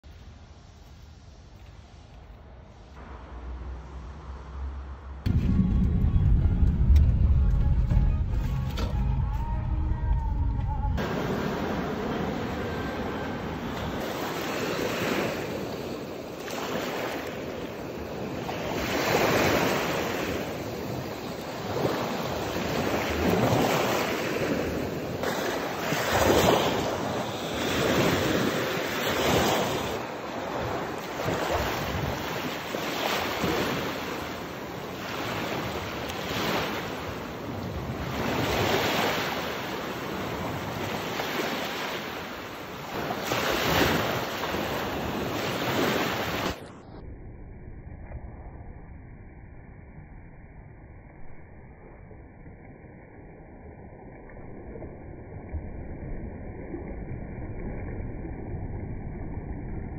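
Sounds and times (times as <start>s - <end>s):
small waves breaking on shore: 11.0s - 46.8s.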